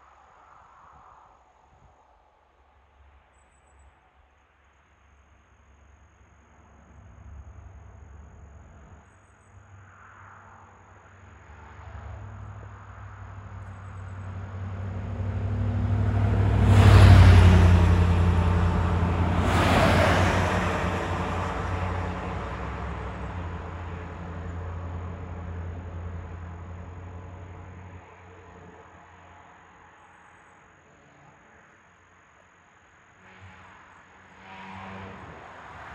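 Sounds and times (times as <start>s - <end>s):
road traffic passing: 6.4s - 30.0s, 30.8s - 35.9s.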